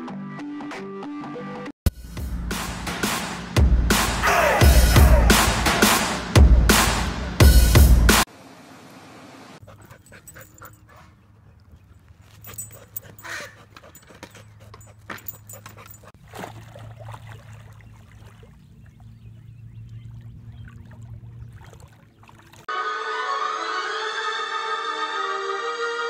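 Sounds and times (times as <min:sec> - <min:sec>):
dog paws scratching dirt: 0:09.6 - 0:16.2.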